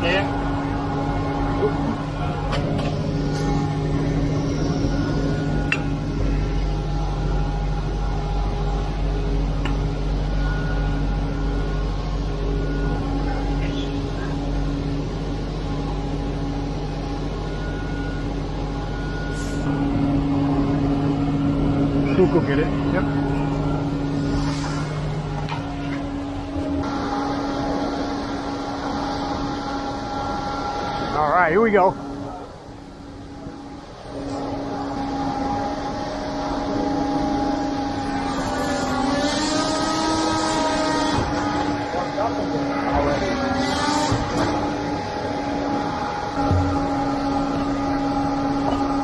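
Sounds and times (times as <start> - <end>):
diesel engine droning: 0.0 - 49.0
diesel engine revving: 34.0 - 49.0.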